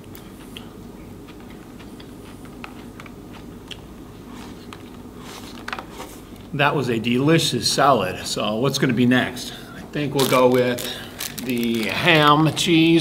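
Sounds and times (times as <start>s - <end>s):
person chewing crunchy food: 0.0s - 6.4s.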